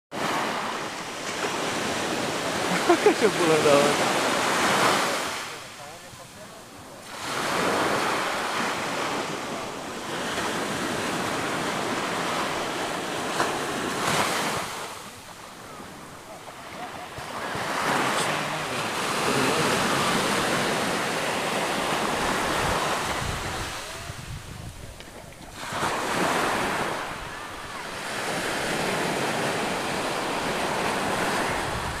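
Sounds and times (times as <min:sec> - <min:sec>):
small waves breaking on beach: 0:00.1 - 0:32.0
wind on microphone: 0:19.3 - 0:32.0.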